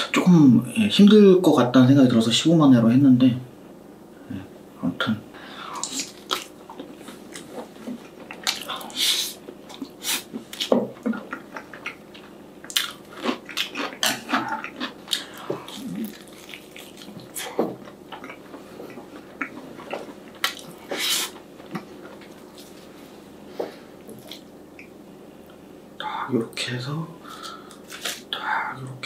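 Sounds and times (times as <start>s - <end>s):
person biting and chewing food: 5.8s - 22.8s, 27.4s - 28.3s.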